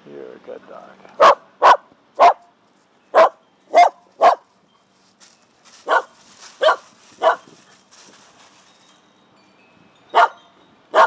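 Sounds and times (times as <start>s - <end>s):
dog barking: 1.2s - 2.5s, 3.2s - 4.4s, 5.8s - 7.5s, 10.2s - 11.0s.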